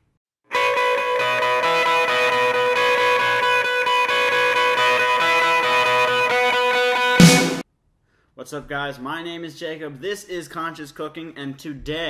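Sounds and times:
instrumental guitar music: 0.5 - 7.6.

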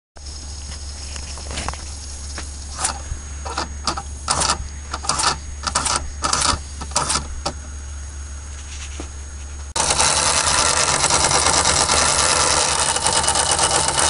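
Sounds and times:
steady low hum: 0.2 - 14.0
model steam engine rough bursts: 2.7 - 7.3, 9.8 - 14.0.

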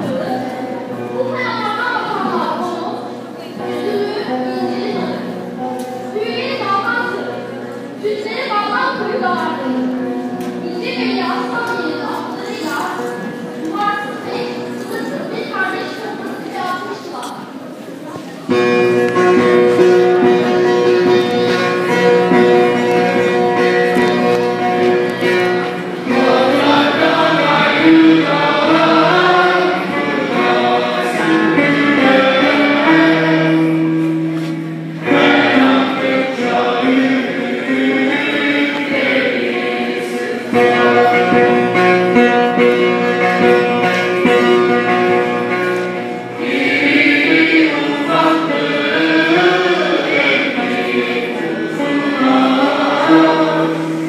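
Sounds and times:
plucked string accompaniment: 0.0 - 54.0
choir singing folk song: 18.5 - 54.0.

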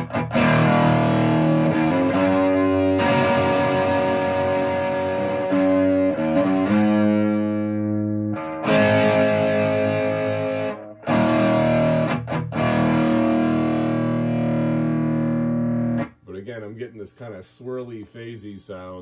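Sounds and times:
overdriven electric guitar chords: 0.0 - 16.2.

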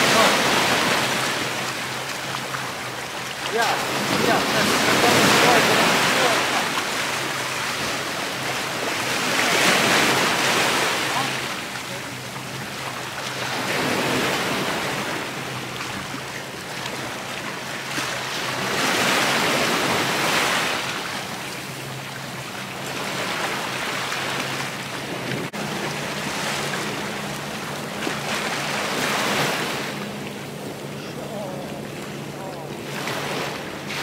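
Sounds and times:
waves washing over rocks: 0.0 - 21.8, 22.8 - 34.0.

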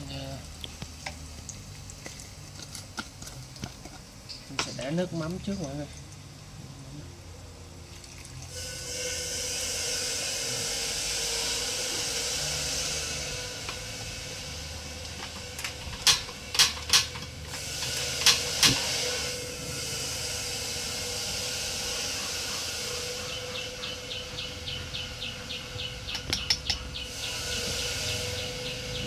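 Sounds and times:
fish sizzling in oil: 0.0 - 6.5, 7.8 - 15.2.

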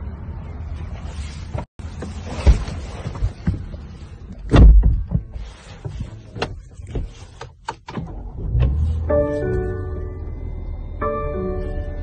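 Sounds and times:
knocks and bumps in car cabin: 1.5 - 7.2
heavy thump: 4.5 - 5.3
low rumble: 8.1 - 12.0.

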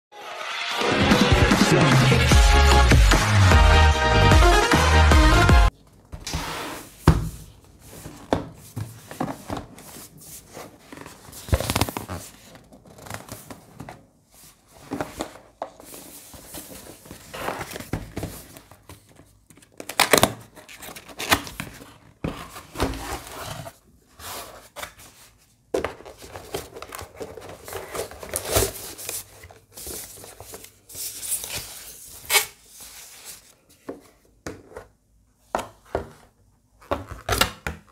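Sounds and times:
plastic wrap crinkling: 10.9 - 13.5
cardboard box scraping: 21.6 - 24.8.

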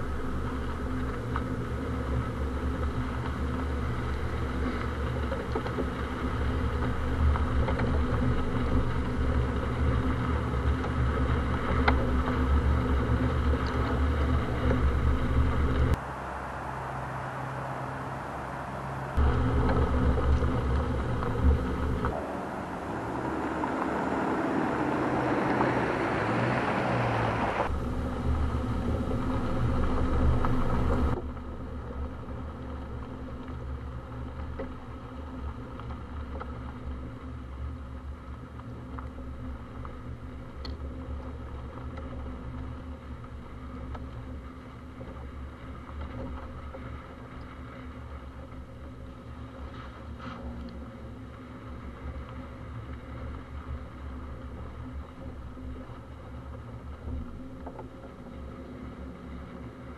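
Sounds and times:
wind noise: 0.0 - 38.3
car engine drone: 0.0 - 59.9
tyres on dirt: 0.1 - 31.2.

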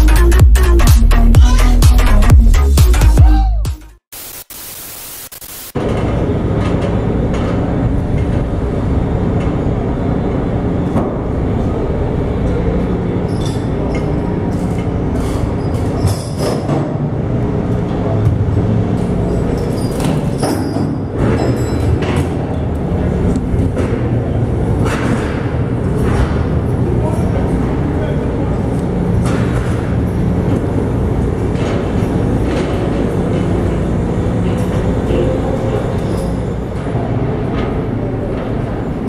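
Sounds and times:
electronic music: 0.0 - 5.8
static hiss: 4.1 - 5.8
low machinery rumble: 5.8 - 16.0, 21.0 - 39.0.

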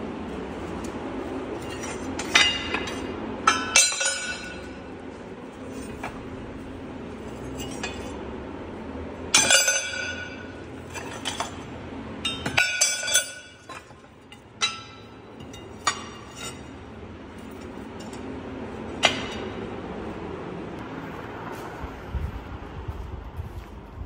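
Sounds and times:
scrap steel clanking: 0.7 - 4.9, 7.0 - 8.2, 9.3 - 19.7.

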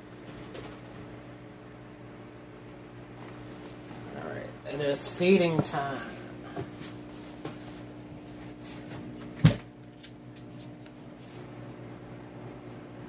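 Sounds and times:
aquarium filter pump hum: 0.0 - 13.0.

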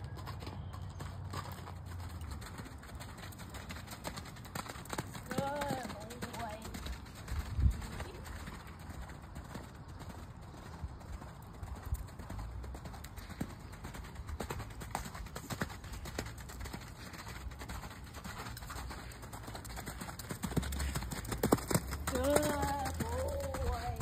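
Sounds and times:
horse hoofbeats on sand: 0.0 - 24.0.

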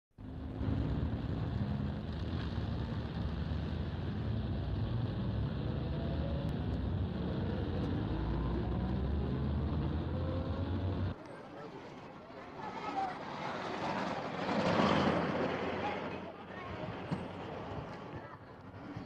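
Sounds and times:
rising engine notes: 0.2 - 11.2
traffic drone: 0.2 - 19.0.

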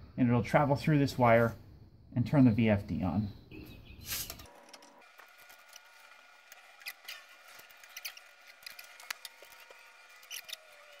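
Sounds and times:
wires and small parts tapping: 4.3 - 11.0.

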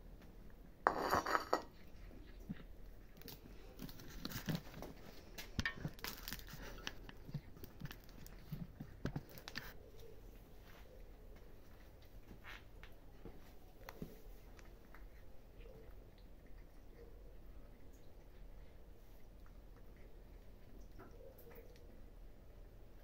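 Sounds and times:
plate clattering on concrete: 0.9 - 1.7
kittens chewing and biting: 1.7 - 23.0.

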